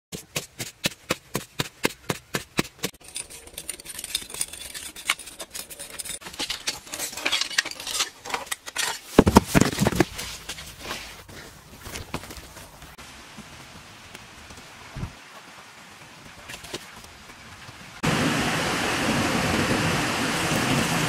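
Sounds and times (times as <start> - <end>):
tool striking dry earth: 0.1 - 10.3
scraping and rustling: 2.6 - 13.0
heavy thumps: 9.2 - 10.2.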